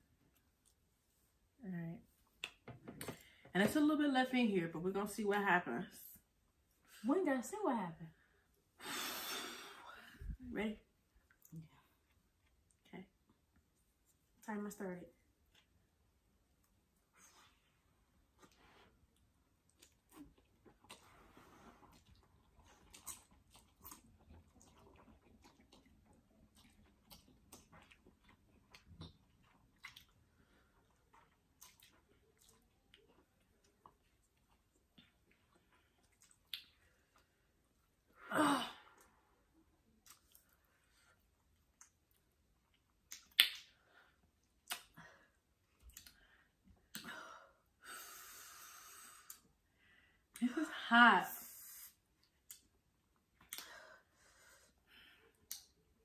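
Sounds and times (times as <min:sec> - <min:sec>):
mouth clicks and lip smacks: 0:21.9 - 0:30.2, 0:31.0 - 0:37.2, 0:40.0 - 0:40.6, 0:41.6 - 0:43.8, 0:44.4 - 0:45.0, 0:45.8 - 0:46.2, 0:46.8 - 0:47.1, 0:52.2 - 0:52.8, 0:53.4 - 0:53.7, 0:55.4 - 0:55.9
mouth smacks: 0:44.6 - 0:45.0.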